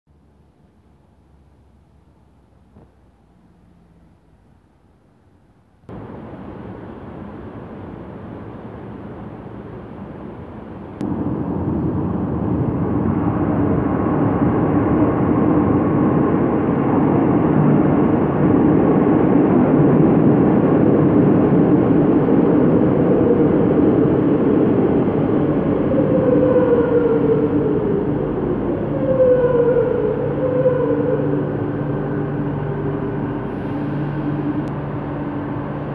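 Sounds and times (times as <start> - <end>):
train rumble: 0.1 - 35.9
steady hum: 5.7 - 35.9
falling whine of train slowing: 5.9 - 35.9.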